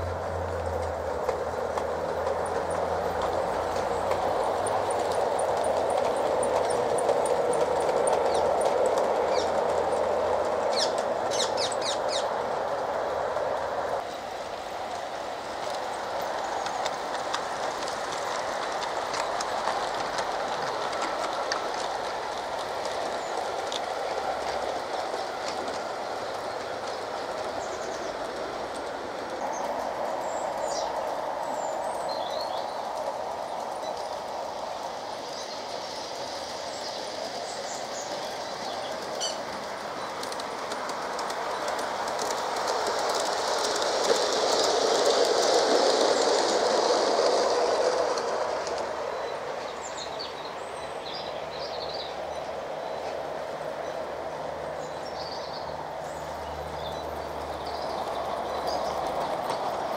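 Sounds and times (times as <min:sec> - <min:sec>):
wheels clicking over rail joints: 0:00.0 - 0:59.9.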